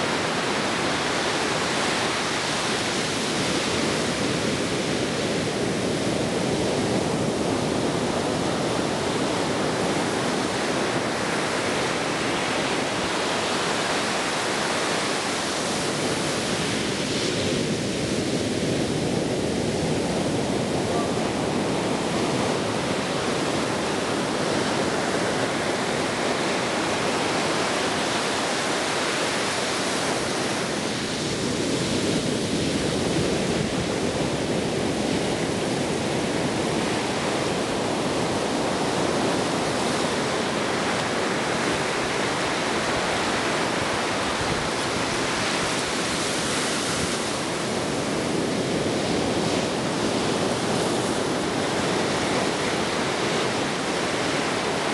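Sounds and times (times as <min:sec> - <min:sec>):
ocean waves breaking: 0:00.0 - 0:54.9.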